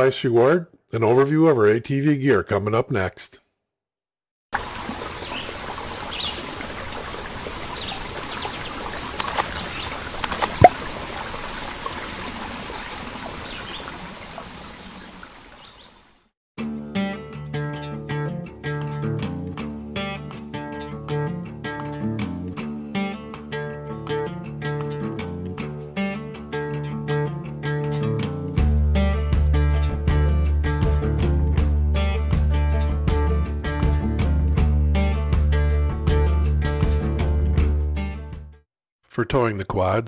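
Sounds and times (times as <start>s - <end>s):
trickling stream: 4.6s - 16.3s
birds chirping: 5.2s - 11.1s, 12.8s - 16.2s
sharp water plop: 9.0s - 12.0s
strummed guitar music: 16.6s - 38.2s.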